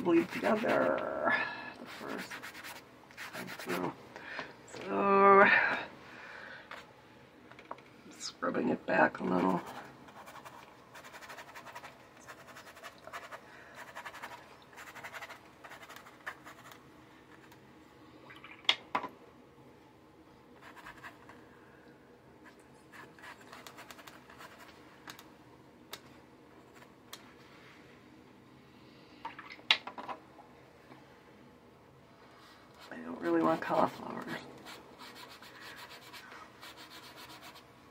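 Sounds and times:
paintbrush scratching on paper: 0:00.0 - 0:01.0, 0:01.8 - 0:04.0, 0:09.4 - 0:16.8, 0:20.6 - 0:21.2, 0:22.4 - 0:24.7, 0:32.8 - 0:37.7.

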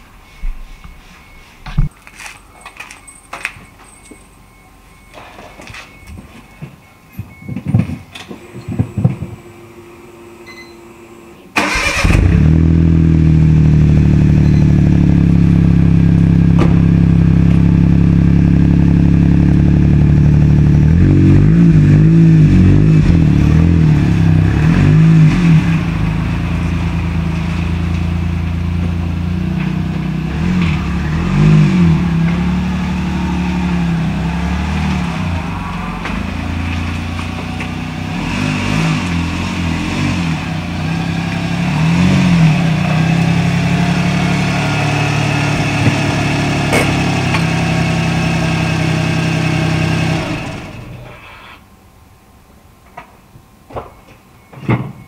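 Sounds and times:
small car engine starting and idling: 0:07.3 - 0:51.7
car engine revving: 0:11.6 - 0:51.1.

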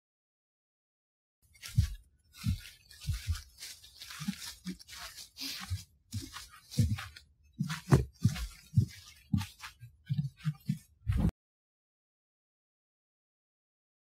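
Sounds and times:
footsteps crunching dry leaves: 0:01.5 - 0:10.8.

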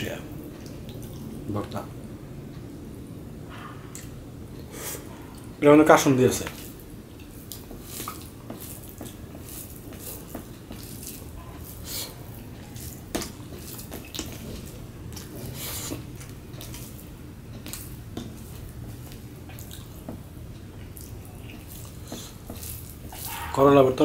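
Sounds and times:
fingers squishing food: 0:06.4 - 0:23.9.

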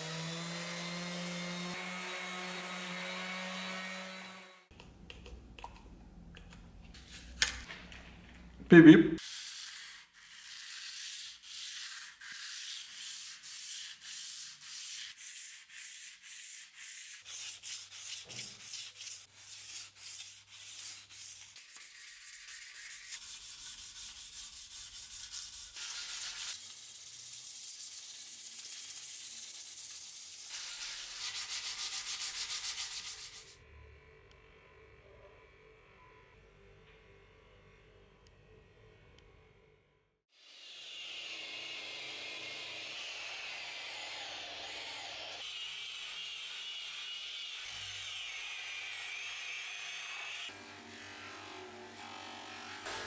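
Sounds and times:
sandpaper rubbing on steel: 0:09.2 - 0:33.6.

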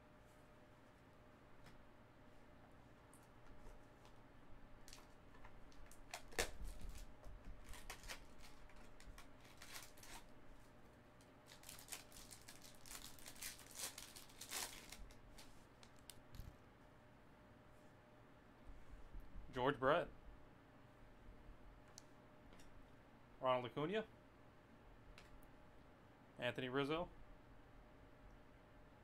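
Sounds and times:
foil wrapper tearing and crinkling: 0:05.7 - 0:10.3, 0:11.4 - 0:16.1.

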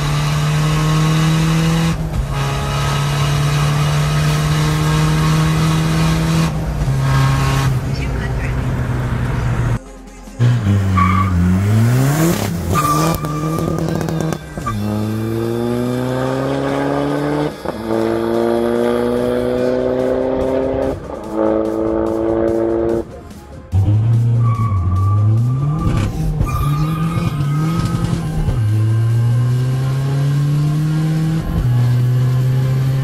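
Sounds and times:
diesel engine accelerating: 0:00.0 - 0:09.8, 0:10.4 - 0:33.0.

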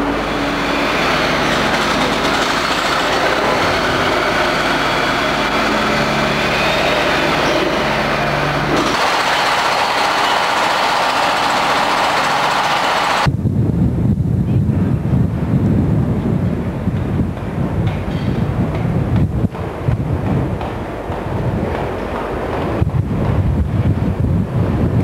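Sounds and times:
electric locomotive running: 0:00.0 - 0:13.3, 0:17.3 - 0:24.0.

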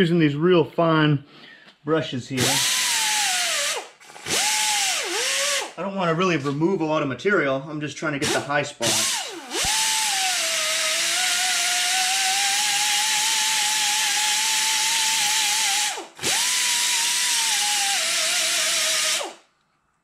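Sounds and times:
air die grinder whining: 0:02.4 - 0:05.8, 0:08.2 - 0:19.4.

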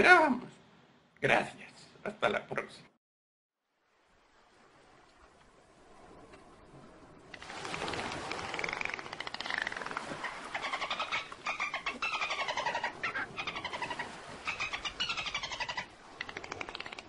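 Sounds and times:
dolphin clicks: 0:07.3 - 0:10.2, 0:16.1 - 0:17.0.

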